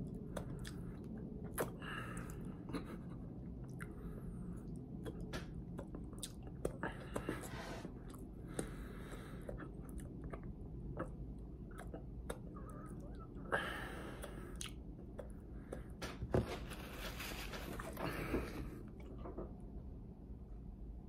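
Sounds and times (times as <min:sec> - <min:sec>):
person chewing: 0:00.0 - 0:16.0
wet mouth clicks and smacks: 0:01.4 - 0:01.8, 0:04.7 - 0:07.3, 0:09.5 - 0:12.6, 0:14.2 - 0:15.8.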